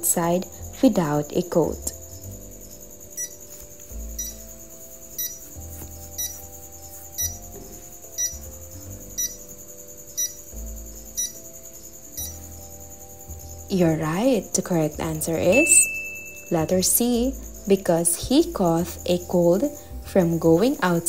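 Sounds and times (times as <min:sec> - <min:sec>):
soft background music: 0:00.0 - 0:21.0
short timer beeps: 0:15.5 - 0:16.6.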